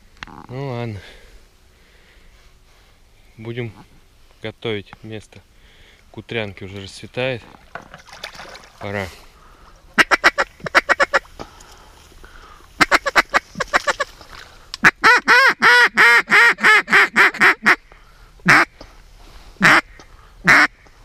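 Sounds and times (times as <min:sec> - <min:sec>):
duck call quacks: 0:10.0 - 0:11.3, 0:12.8 - 0:14.1, 0:14.8 - 0:17.8, 0:18.4 - 0:18.7, 0:19.6 - 0:20.8.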